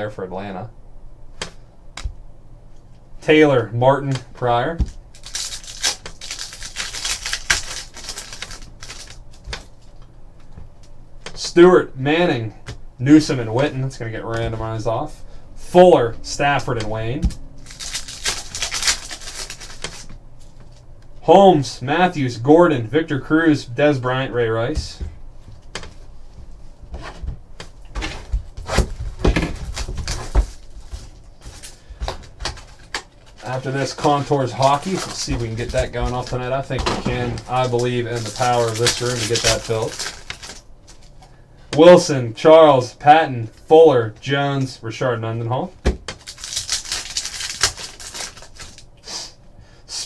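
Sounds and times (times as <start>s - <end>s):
card packs rustling: 4.7s - 10.0s, 17.6s - 20.9s, 27.8s - 41.4s, 46.1s - 48.9s.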